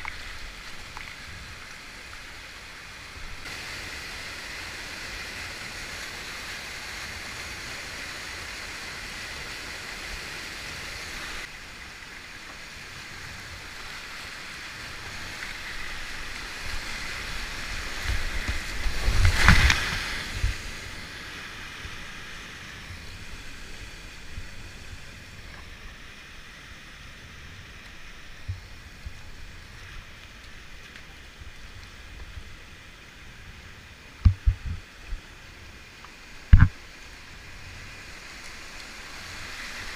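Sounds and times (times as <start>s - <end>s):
whitewater rushing: 0.0s - 32.1s, 33.9s - 39.9s
kayak bow splashing: 13.5s - 24.8s.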